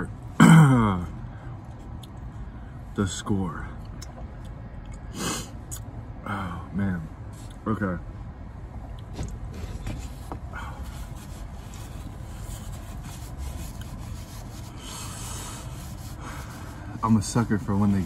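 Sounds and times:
rubbing and rustling: 0:09.1 - 0:18.0.

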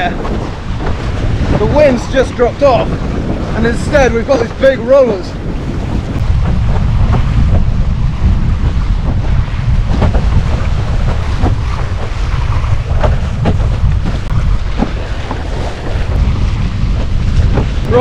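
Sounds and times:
water splashing and slapping: 0:00.0 - 0:18.0
wind buffeting microphone: 0:00.0 - 0:18.0.

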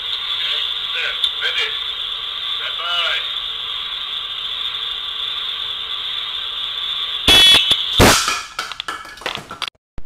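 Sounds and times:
pellet pistol shot: 0:07.5 - 0:08.6.

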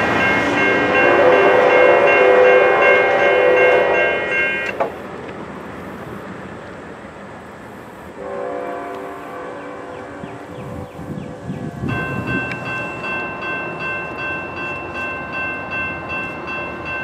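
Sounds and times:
train running noise: 0:00.0 - 0:17.0
locomotive air horn chord: 0:00.3 - 0:04.8, 0:08.2 - 0:13.0.

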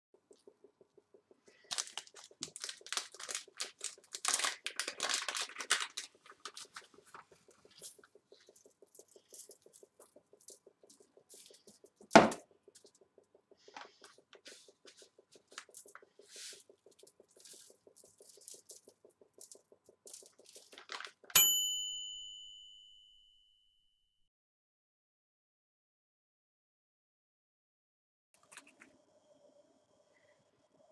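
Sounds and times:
timer bell ding: 0:21.4 - 0:23.8.

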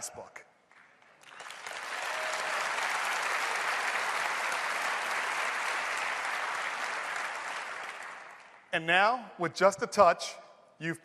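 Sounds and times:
large audience applauding: 0:00.7 - 0:08.7.

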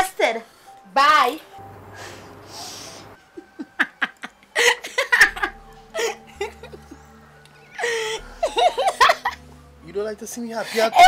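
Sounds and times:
woman laughing: 0:03.2 - 0:07.0, 0:07.8 - 0:09.4.

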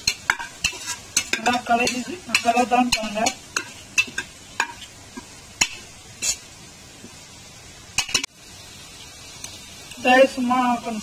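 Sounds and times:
utensil scraping a pot: 0:00.0 - 0:06.5
faint steady sizzle: 0:00.0 - 0:11.0.

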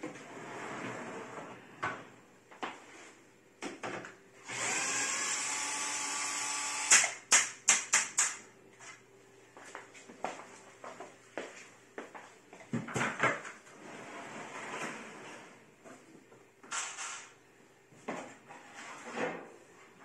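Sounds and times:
power drill running: 0:04.4 - 0:07.0.

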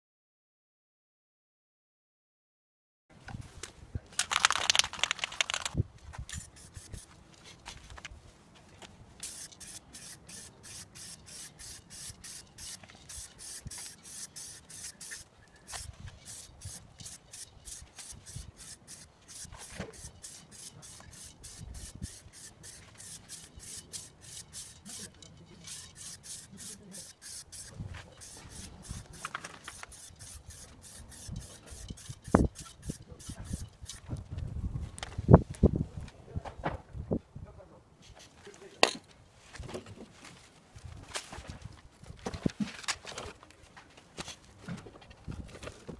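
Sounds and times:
spray-paint can hissing: 0:06.3 - 0:07.1, 0:09.2 - 0:34.0.

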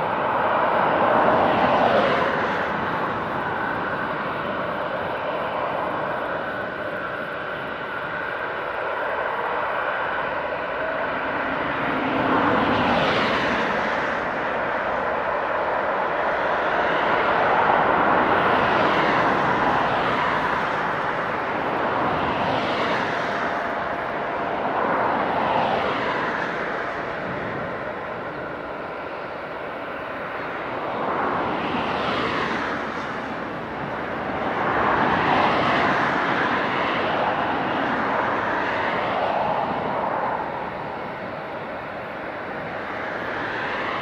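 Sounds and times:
jet airliner engines: 0:00.0 - 0:44.0
jet taxiing: 0:00.0 - 0:44.0.

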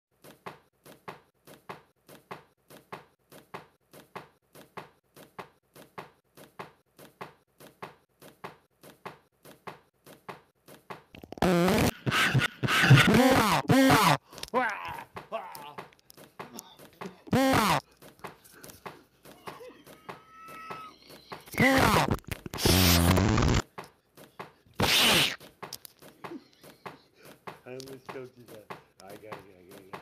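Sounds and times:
man making drawn-out vocal noises: 0:13.0 - 0:15.9, 0:20.8 - 0:22.2.

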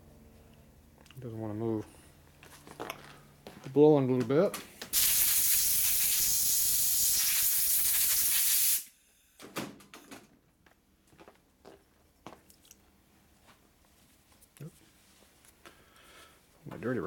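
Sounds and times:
compressed air hissing: 0:05.0 - 0:08.9.

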